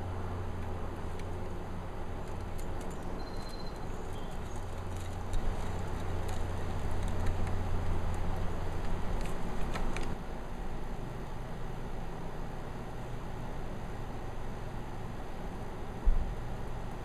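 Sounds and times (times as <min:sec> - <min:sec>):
auger bit crunching wood: 0:01.0 - 0:10.2.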